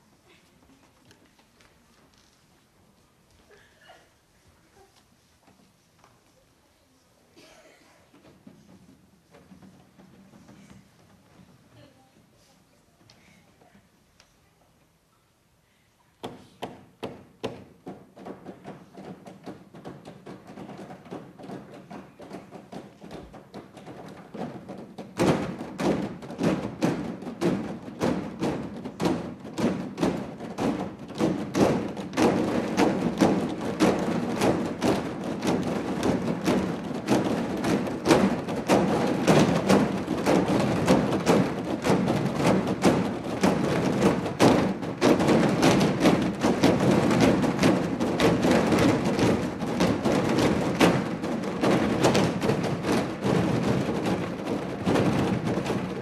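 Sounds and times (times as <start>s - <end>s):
hand-drumming on plastic bins: 8.2s - 11.7s, 16.2s - 56.0s.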